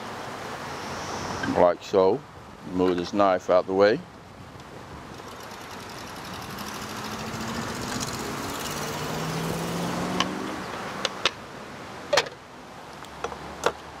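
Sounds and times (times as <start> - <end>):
vehicle passing by: 5.1 - 11.2.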